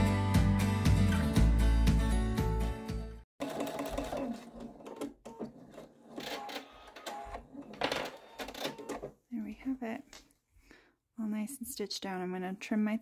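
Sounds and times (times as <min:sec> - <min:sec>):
background music: 0:00.0 - 0:03.2
sewing machine stitching: 0:03.4 - 0:09.1.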